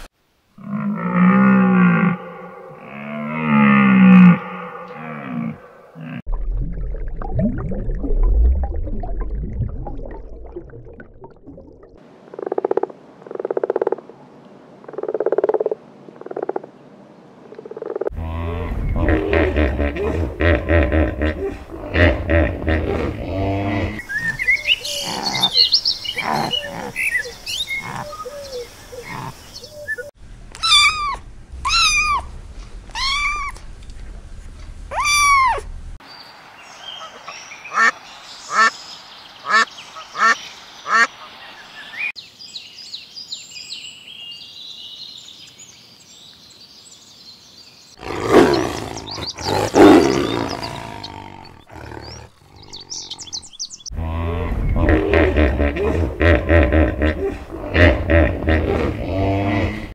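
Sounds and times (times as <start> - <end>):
long rising and falling animal calls: 30.6 - 32.3, 32.9 - 33.6, 34.9 - 35.7
loud burst of animal calls: 30.6 - 32.3, 34.9 - 35.7.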